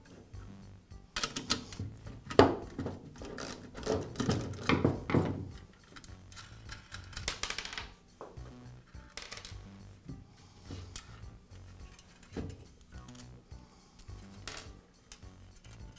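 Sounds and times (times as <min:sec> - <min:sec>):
hand tools set down on wood: 0:03.9 - 0:05.5.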